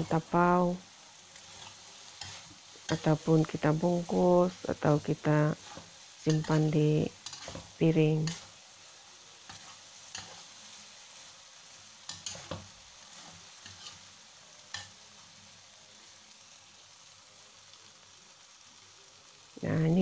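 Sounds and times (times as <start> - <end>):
noodles sizzling in a wok: 0.0 - 20.0
spatula scraping a wok: 1.1 - 4.3, 5.3 - 15.2.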